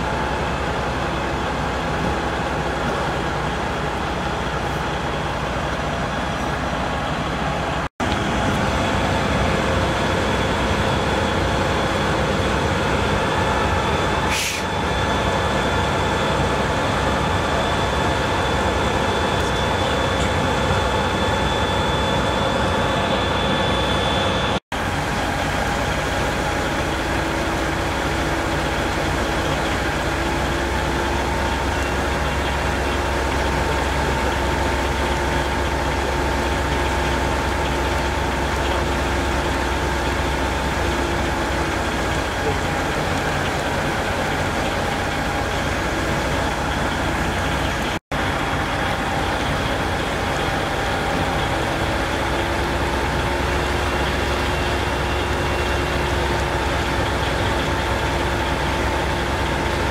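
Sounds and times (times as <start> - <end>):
diesel engines droning: 0.0 - 59.9
short hiss: 14.3 - 14.7.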